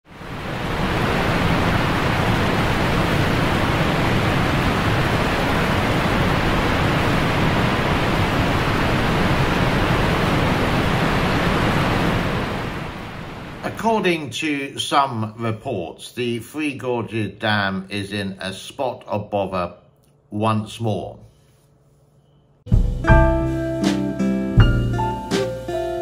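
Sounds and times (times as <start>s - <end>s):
water rushing from dam spillway: 0.2s - 13.0s.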